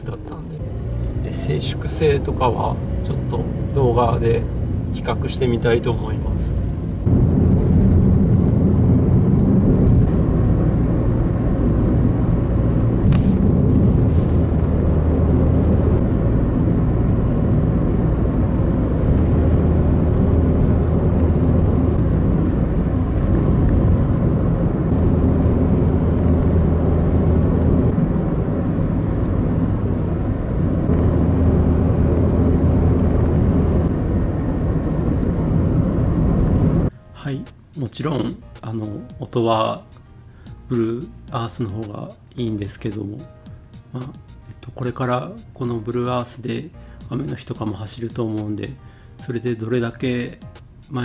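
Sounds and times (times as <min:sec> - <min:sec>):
car engine running: 0:00.0 - 0:36.9
tyre rumble inside moving car: 0:06.6 - 0:36.9.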